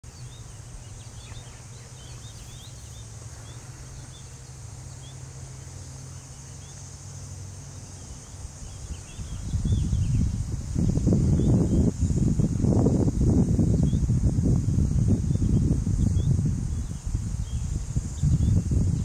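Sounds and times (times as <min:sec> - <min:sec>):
birds chirping: 0:00.0 - 0:12.2
insect chorus drone: 0:00.0 - 0:19.0
low steady hum: 0:00.0 - 0:19.0.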